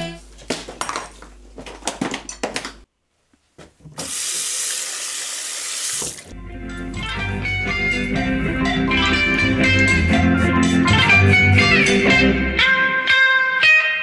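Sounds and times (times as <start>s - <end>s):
tap water running into basin: 3.9s - 6.3s.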